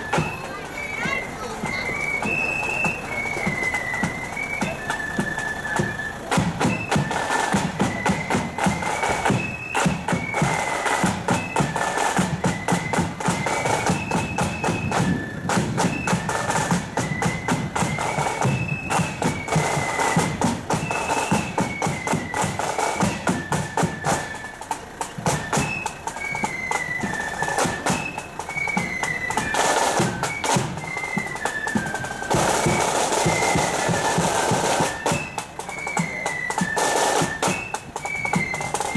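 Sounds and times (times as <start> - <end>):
flutes playing a march melody: 0.0 - 38.9
rapid steady drumming: 0.0 - 38.9.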